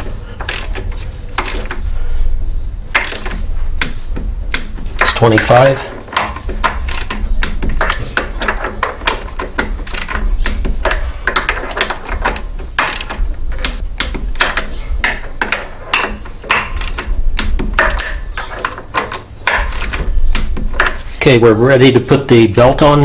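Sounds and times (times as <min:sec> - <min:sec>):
torque wrench ratchet clicking: 0:00.4 - 0:00.8, 0:01.4 - 0:01.8, 0:03.0 - 0:03.4, 0:06.7 - 0:07.6, 0:09.8 - 0:10.2, 0:12.8 - 0:13.2, 0:16.7 - 0:17.1, 0:19.5 - 0:20.0.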